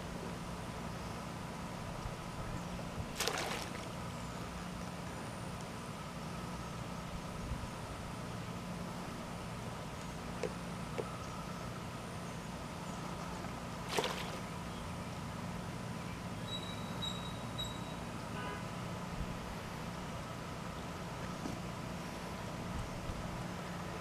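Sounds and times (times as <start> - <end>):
boat engine hum: 0.0 - 24.0
water splash: 3.2 - 3.9, 13.9 - 14.5.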